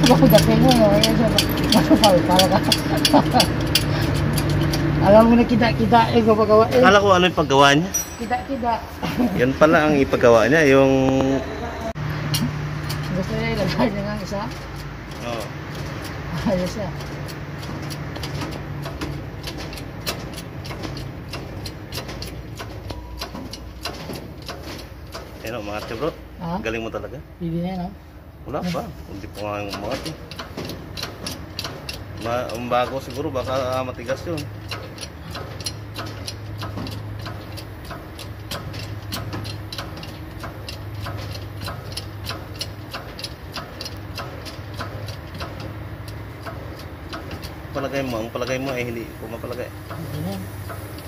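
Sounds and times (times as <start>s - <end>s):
diesel engine idling: 0.0s - 27.4s, 28.0s - 51.0s
regular ticking: 0.0s - 51.0s
sharp clicks and taps: 16.9s - 26.2s, 29.2s - 51.0s.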